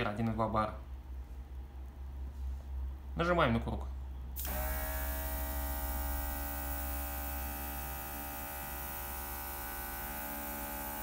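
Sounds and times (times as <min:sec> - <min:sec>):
compressor motor hum: 0:04.3 - 0:11.0.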